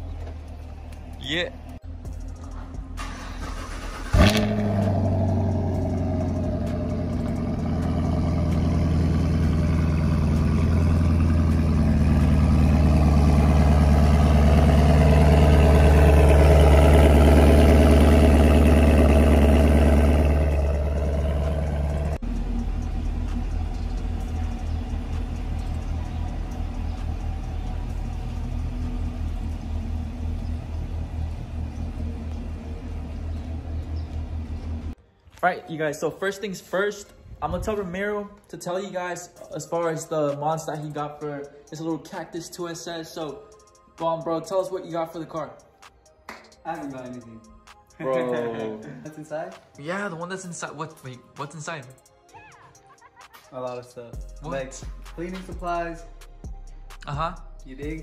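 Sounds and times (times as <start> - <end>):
car engine humming: 0.0 - 35.0
car engine lumpy idle: 0.0 - 35.0.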